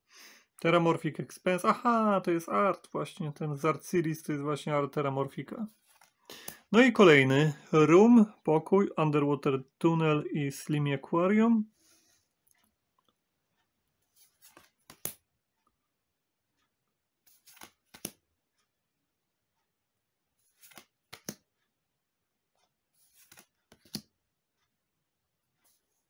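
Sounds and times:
cards rustling: 0:05.7 - 0:06.6, 0:14.1 - 0:15.2, 0:17.2 - 0:18.2, 0:20.4 - 0:21.4, 0:22.9 - 0:24.1
sharp card snap: 0:14.9 - 0:15.2, 0:17.4 - 0:18.2, 0:20.6 - 0:21.4.

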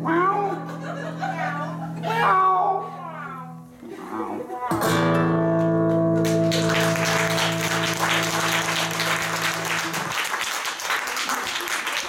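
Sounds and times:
acoustic guitar chord ringing: 0:04.8 - 0:10.1
audience applauding: 0:06.2 - 0:12.0.

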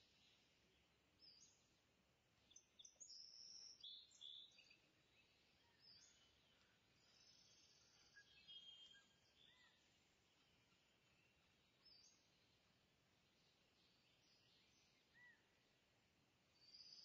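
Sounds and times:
faint high-pitched chirps: 0:02.5 - 0:12.3.

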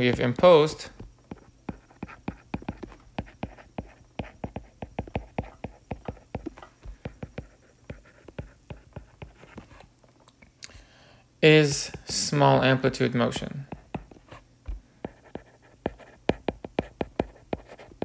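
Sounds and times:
stylus tapping on tablet screen: 0:00.0 - 0:09.7, 0:13.7 - 0:18.0.

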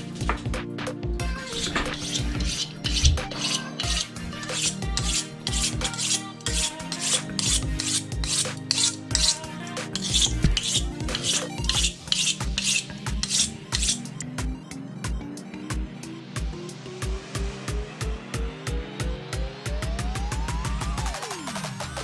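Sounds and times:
fish scaler scraping scales: 0:01.4 - 0:14.2.

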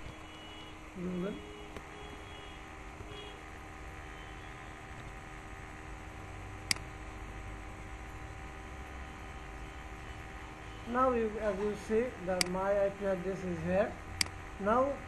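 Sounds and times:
electrical hum and hiss: 0:00.0 - 0:15.0
mouse click: 0:06.6 - 0:06.9, 0:12.4 - 0:12.6.

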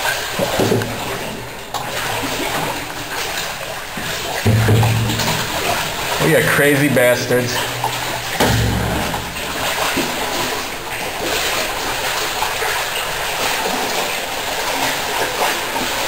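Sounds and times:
water splashing: 0:00.0 - 0:16.0
low thump: 0:04.0 - 0:06.3, 0:07.8 - 0:10.1.

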